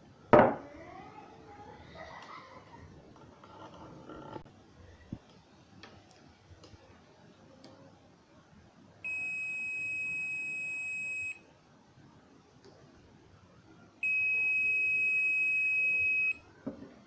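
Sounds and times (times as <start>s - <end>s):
multimeter continuity beeps: 9.1s - 11.4s, 14.0s - 16.4s.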